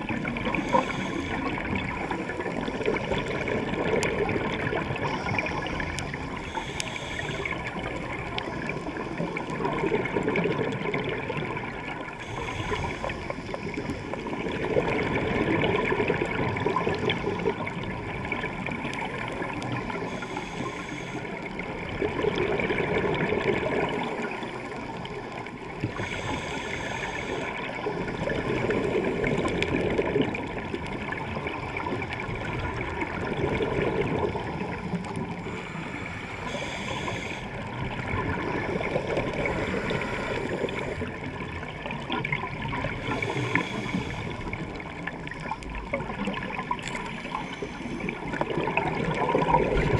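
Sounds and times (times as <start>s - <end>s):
exhaled air bubbling underwater: 0.0s - 49.9s
regulator inhalation hiss: 0.5s - 2.2s, 6.4s - 7.8s, 12.2s - 13.8s, 20.0s - 21.4s, 25.9s - 27.6s, 35.4s - 37.6s, 39.4s - 41.1s, 43.0s - 44.6s.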